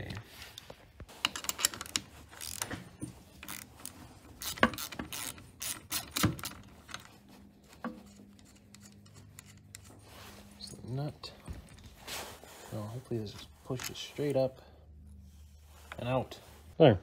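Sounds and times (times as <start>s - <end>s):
hand ratchet clicking: 3.4s - 7.1s.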